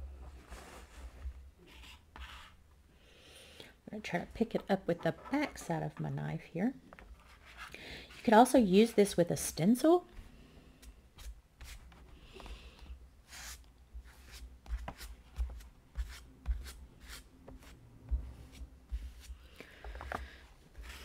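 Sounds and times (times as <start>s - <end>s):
palette knife scraping and tapping: 13.3s - 20.2s.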